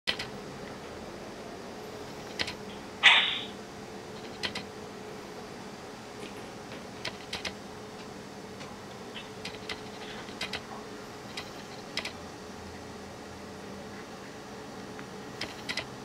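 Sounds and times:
cat chattering: 3.0 - 3.6.

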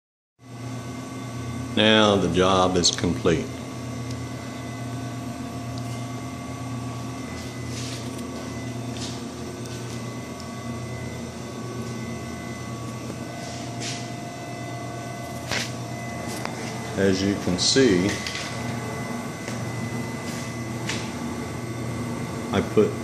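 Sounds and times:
electrical hum of equipment: 0.4 - 23.0
steady tones: 6.0 - 23.0.

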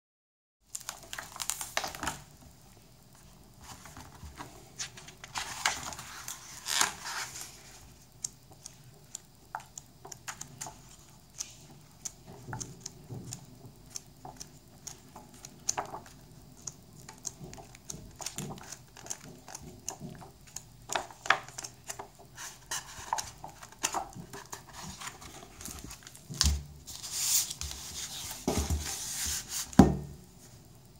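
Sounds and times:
book pages turning: 0.7 - 2.3, 3.6 - 7.8, 10.0 - 29.8
paper rustling: 3.6 - 7.8, 17.3 - 29.8
book knocking on surface: 28.4 - 28.9, 29.8 - 30.1.

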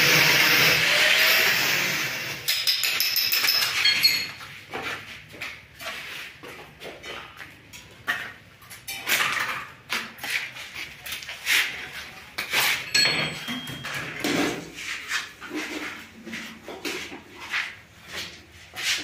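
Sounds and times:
metallic knocks and clinks: 2.5 - 4.5, 12.8 - 14.6.

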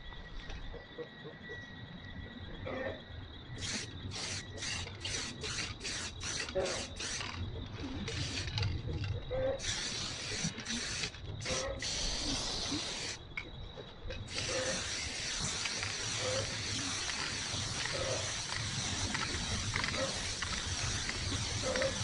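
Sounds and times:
spray paint can hissing: 3.6 - 7.4, 8.0 - 13.2, 14.3 - 22.0.

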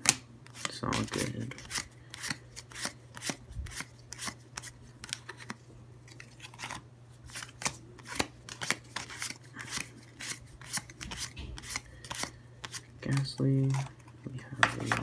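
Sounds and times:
trading cards flipped with swishes: 0.0 - 14.1.

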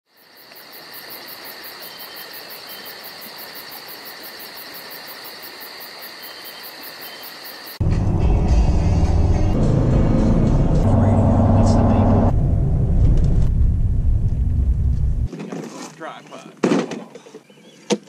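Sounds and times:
insects chirping: 0.1 - 7.8
moving car interior rumble: 7.8 - 15.3.

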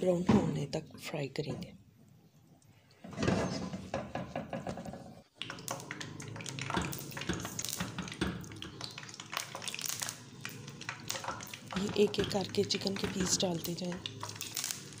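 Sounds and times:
hot oil crackling and sizzling: 5.4 - 15.0.

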